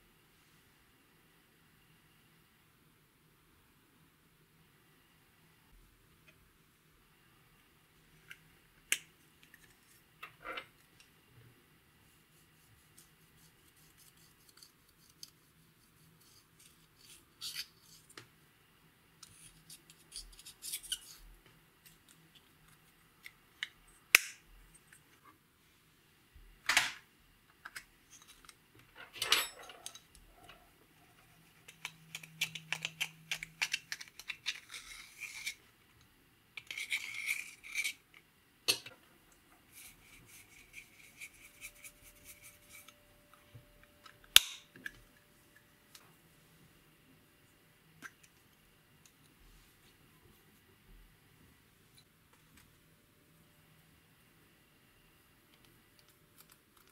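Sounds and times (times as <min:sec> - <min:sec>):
plastic compacts clicking: 0:31.6 - 0:35.6.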